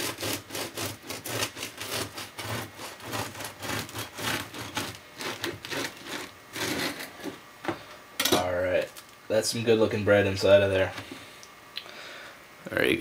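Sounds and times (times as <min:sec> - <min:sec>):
knife sawing through bread: 0:00.0 - 0:07.2.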